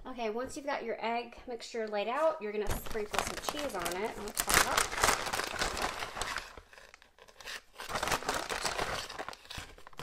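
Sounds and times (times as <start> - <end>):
plastic bag crinkling: 2.2 - 10.0.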